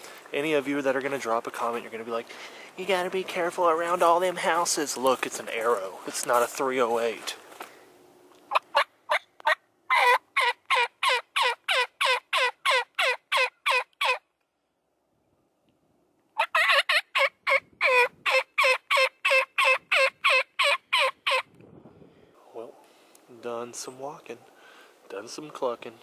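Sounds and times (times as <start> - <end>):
turkey yelping: 8.5 - 14.3, 16.4 - 21.5.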